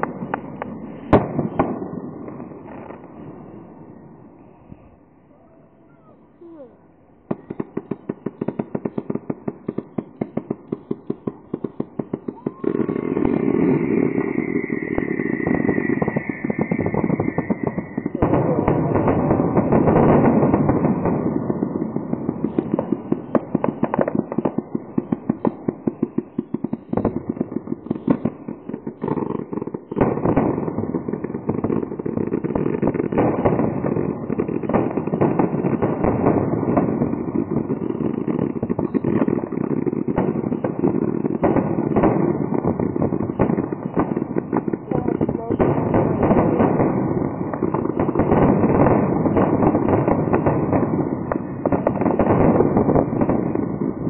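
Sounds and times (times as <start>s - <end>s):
fireworks bursting and crackling: 0.0s - 54.0s
high firework whistle: 12.0s - 18.8s.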